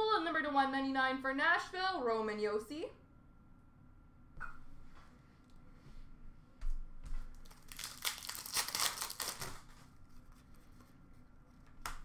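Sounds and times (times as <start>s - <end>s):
foil wrapper crinkling and tearing: 7.4s - 9.8s.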